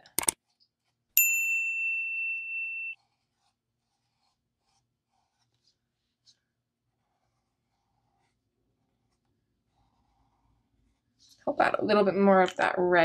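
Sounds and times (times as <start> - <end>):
bright bell ding: 1.2 - 3.0.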